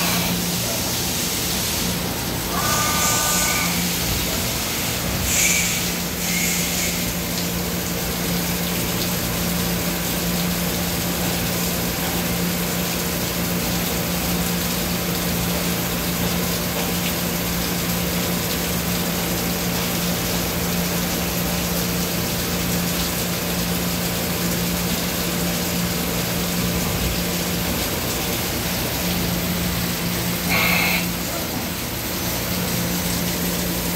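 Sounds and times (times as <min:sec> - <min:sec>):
coolant spray hiss: 0:00.0 - 0:07.9, 0:26.0 - 0:33.9.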